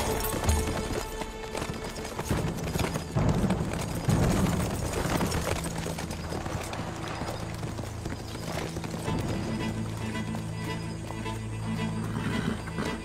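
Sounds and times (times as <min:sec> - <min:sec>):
horses galloping over turf: 0:00.0 - 0:13.0.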